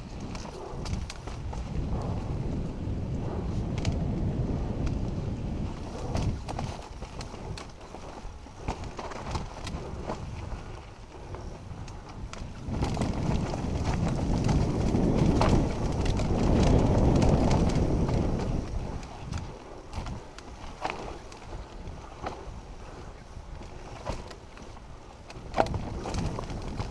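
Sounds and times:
low rumble: 0.6s - 6.5s
bike parts rattling: 5.8s - 10.8s, 11.4s - 22.6s.

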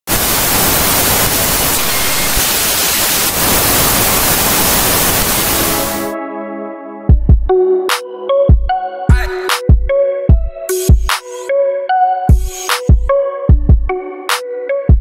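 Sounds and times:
static hiss: 0.1s - 6.1s.

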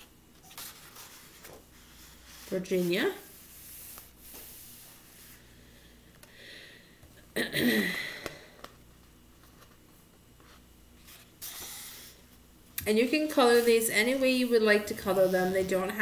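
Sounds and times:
paper rustling: 0.4s - 2.6s.

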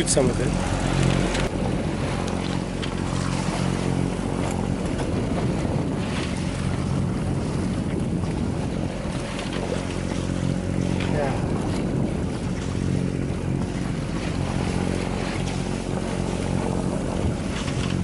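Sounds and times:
diesel engine hum: 0.0s - 5.2s
water rushing past hull: 0.0s - 18.0s
wind buffeting microphone: 0.0s - 18.0s.

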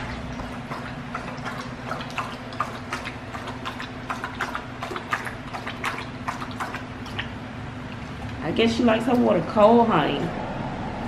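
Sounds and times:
dog lapping water from metal bowl: 0.0s - 9.6s.

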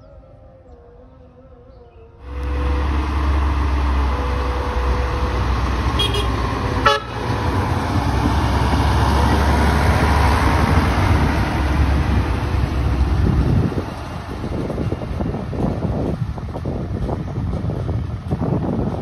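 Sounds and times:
locomotive engine drone: 0.0s - 19.0s
train horn toot: 2.2s - 7.6s.

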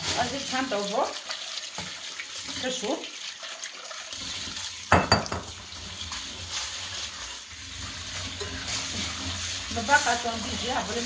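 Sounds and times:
tap water splashing through grains: 0.0s - 11.0s
colander knocking on sink: 4.9s - 5.6s.

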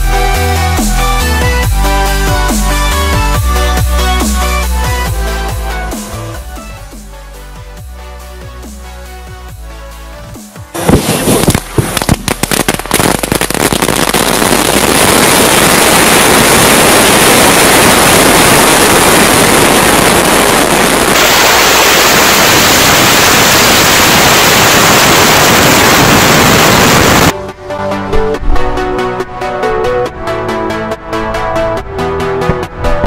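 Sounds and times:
firecrackers crackling: 10.7s - 27.3s.

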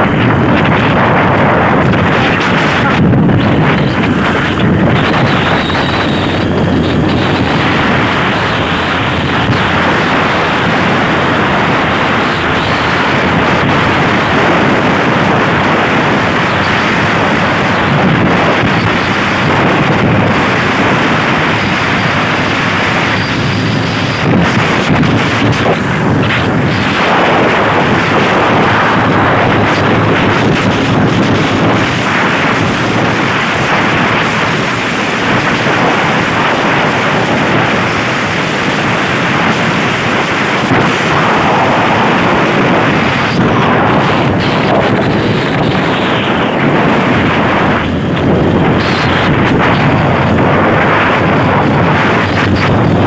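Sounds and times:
wind buffeting microphone: 0.0s - 53.0s.

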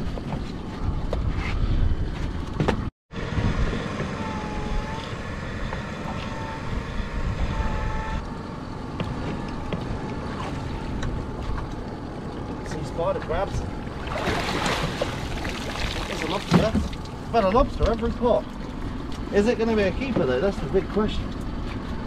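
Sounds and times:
wind on microphone: 3.3s - 3.8s.

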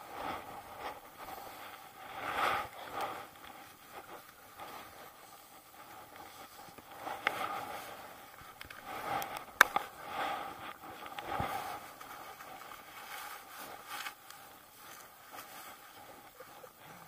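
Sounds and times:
scraping in snow: 0.0s - 17.0s.

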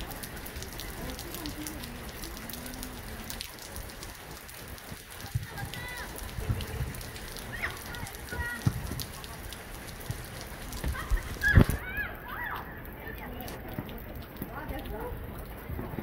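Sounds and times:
rain pattering: 0.0s - 16.0s
distant shouting voices: 5.2s - 6.3s, 11.0s - 13.2s.

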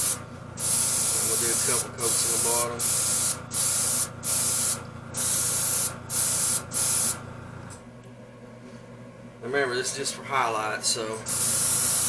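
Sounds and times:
airbrush spraying hiss: 0.0s - 7.2s, 11.3s - 12.0s.

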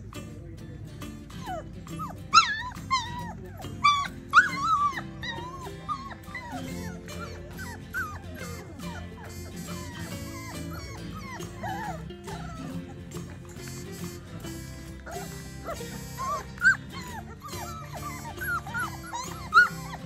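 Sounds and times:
puppies whining and yipping: 1.2s - 20.0s.

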